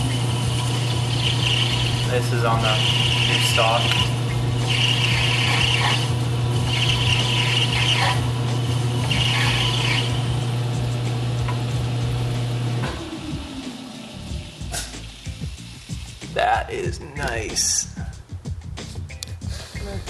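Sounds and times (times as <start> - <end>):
high cutting squeals: 0.0 - 10.3
lathe motor humming: 0.0 - 16.2.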